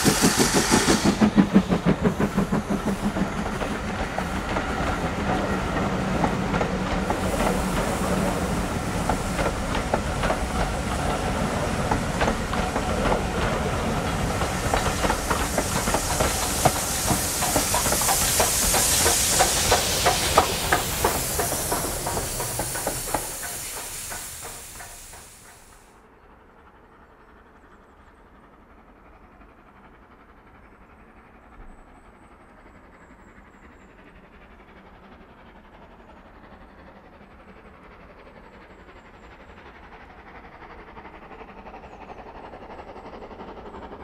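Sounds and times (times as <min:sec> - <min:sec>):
locomotive exhaust beats: 0:00.0 - 0:25.8
wheels clacking over rail joints: 0:00.0 - 0:25.8
steam hissing: 0:00.0 - 0:25.9
train wheels rumbling: 0:00.0 - 0:44.0.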